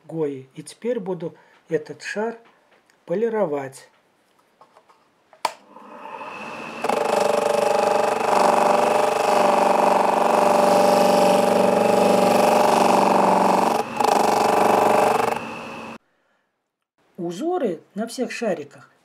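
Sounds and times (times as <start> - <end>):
polishing machine motor humming: 5.7 - 16.0.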